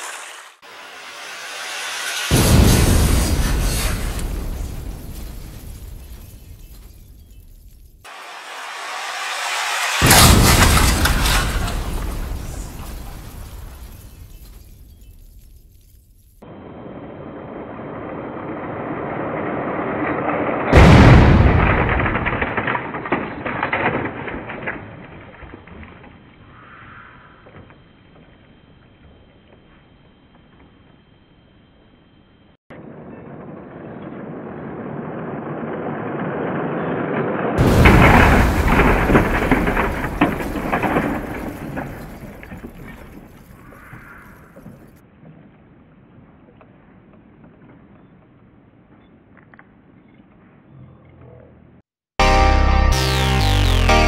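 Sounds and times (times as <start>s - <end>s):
rising noise: 0.0s - 4.8s, 8.1s - 12.8s
crackling: 0.0s - 16.4s, 37.6s - 45.0s
loud explosion boom: 0.9s - 7.3s, 8.5s - 15.4s, 20.7s - 23.4s, 37.6s - 43.4s.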